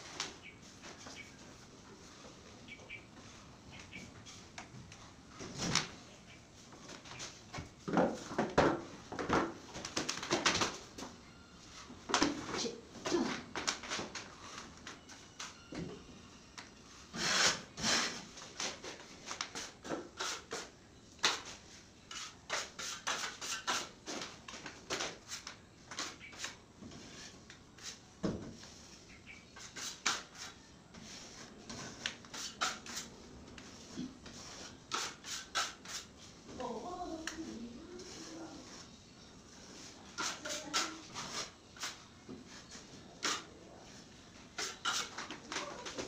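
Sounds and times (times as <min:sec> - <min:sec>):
putty knife scraping: 0:22.1 - 0:24.0, 0:29.6 - 0:36.1, 0:40.1 - 0:42.0, 0:44.6 - 0:45.4.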